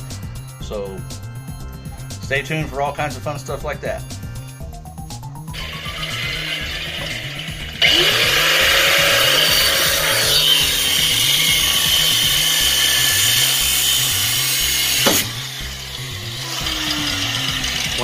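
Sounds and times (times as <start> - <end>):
grinder cutting through steel: 5.5 - 18.0.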